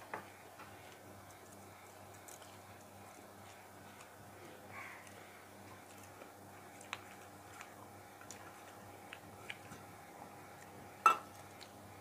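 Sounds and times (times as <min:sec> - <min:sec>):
faint clicks of eating: 0:00.5 - 0:11.8
spoon clinking on steel dish: 0:11.1 - 0:11.3.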